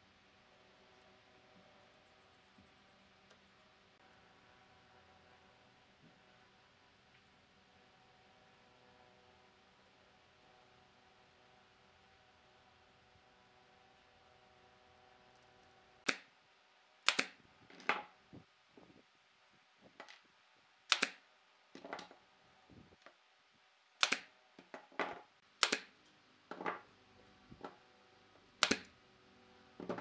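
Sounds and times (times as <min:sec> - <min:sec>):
pneumatic stapler firing: 0:17.0 - 0:17.4, 0:20.9 - 0:21.2, 0:24.0 - 0:24.3, 0:25.6 - 0:25.9, 0:28.6 - 0:28.9.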